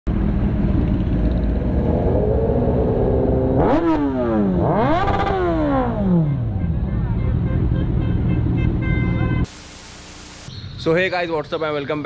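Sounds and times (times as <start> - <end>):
motorbike engine idling and revving: 0.1 - 8.9.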